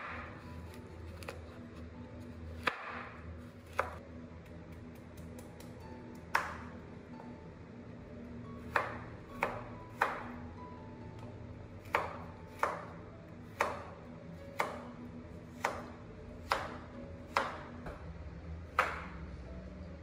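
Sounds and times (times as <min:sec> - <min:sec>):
knife chopping on cutting board: 0:02.5 - 0:04.0, 0:08.7 - 0:10.4, 0:11.8 - 0:13.9, 0:14.6 - 0:14.9, 0:15.6 - 0:18.0, 0:18.7 - 0:19.2.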